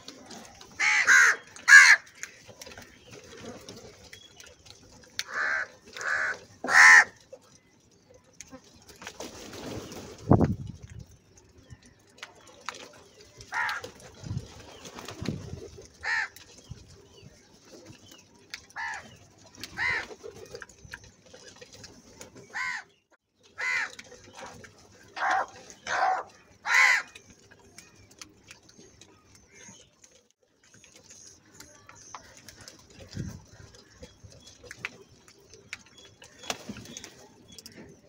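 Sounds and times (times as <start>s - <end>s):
crows cawing: 0.8s - 2.1s, 5.3s - 7.2s, 16.0s - 16.4s, 18.8s - 19.0s, 22.5s - 22.9s, 23.6s - 24.0s, 25.2s - 27.2s.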